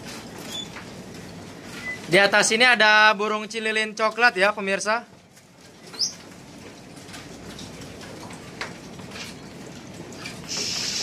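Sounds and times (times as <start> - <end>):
background of caged birds: 0.0 - 11.0
bird chirping: 5.8 - 6.2
brief high hiss: 10.5 - 11.0.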